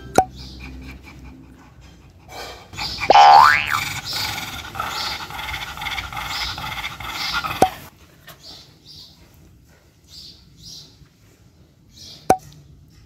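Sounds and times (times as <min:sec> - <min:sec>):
dog panting and sniffing: 0:00.3 - 0:03.1, 0:03.8 - 0:07.9.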